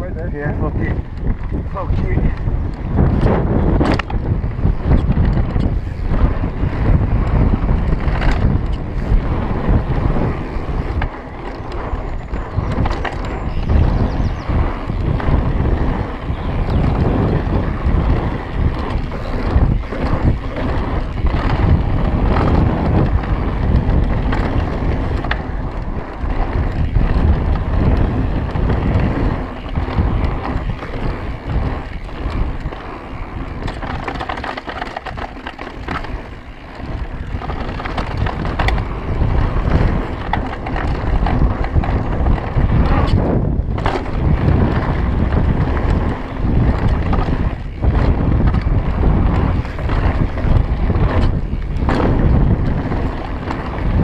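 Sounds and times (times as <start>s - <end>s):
bike rattling over dirt trail: 0.0s - 54.0s
wind buffeting microphone: 0.0s - 54.0s.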